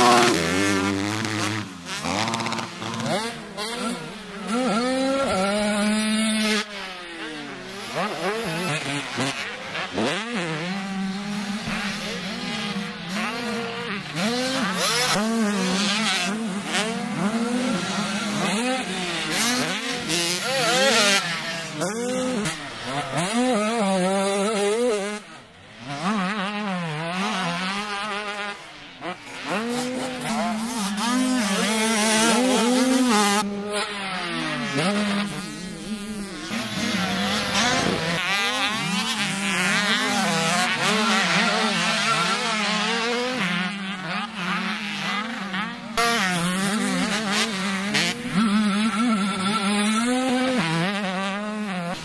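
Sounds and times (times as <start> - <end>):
dirt bike engines revving: 0.0 - 52.0.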